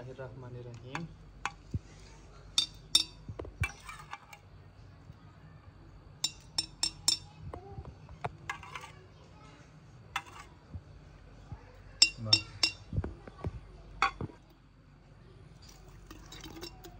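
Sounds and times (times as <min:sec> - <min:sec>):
metal spoon clinking on plate: 0:02.6 - 0:04.1, 0:06.2 - 0:07.4, 0:12.0 - 0:12.9, 0:14.0 - 0:14.3, 0:16.1 - 0:16.9.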